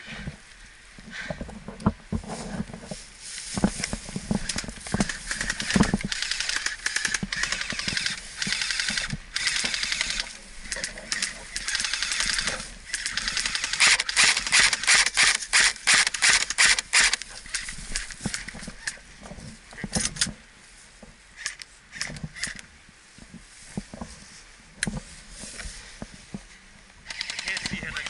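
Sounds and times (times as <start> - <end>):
airsoft guns firing bursts: 5.0 - 10.3, 11.2 - 17.2, 27.1 - 28.0.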